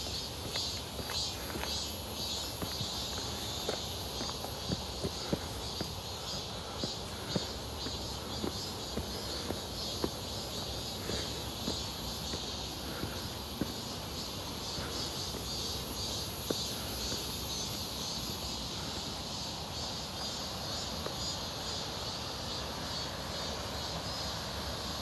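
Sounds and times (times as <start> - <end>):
cicadas buzzing: 0.0 - 25.0.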